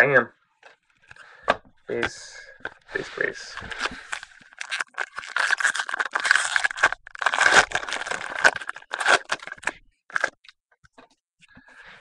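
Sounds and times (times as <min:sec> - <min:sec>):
foil wrapper crinkling: 0:03.0 - 0:10.5.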